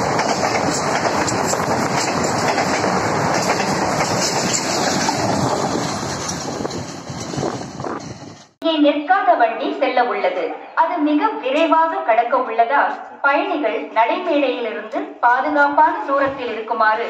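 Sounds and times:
rail clicks: 0:00.0 - 0:08.6
train wheels rushing on rails: 0:00.0 - 0:08.6.

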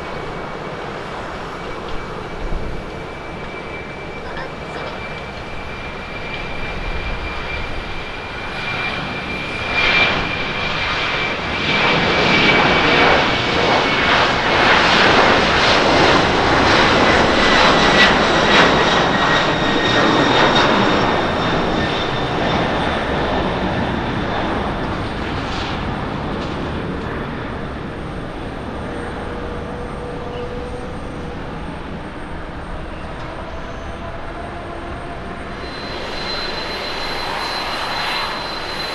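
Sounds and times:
jet engine roar: 0:00.0 - 0:38.9
high fan whine: 0:26.4 - 0:38.9.

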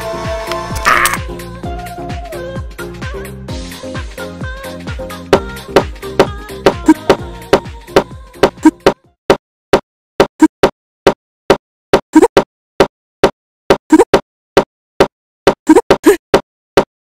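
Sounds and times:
music: 0:00.0 - 0:09.2.

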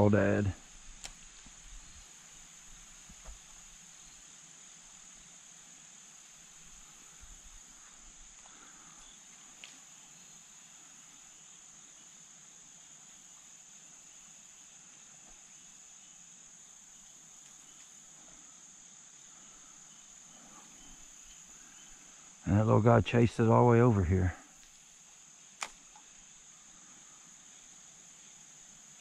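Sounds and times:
insect chorus drone: 0:00.0 - 0:29.0
small click: 0:01.0 - 0:01.2, 0:25.6 - 0:26.1.

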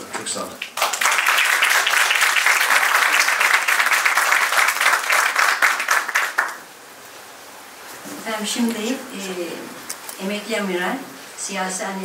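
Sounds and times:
audience applauding: 0:00.2 - 0:06.7.

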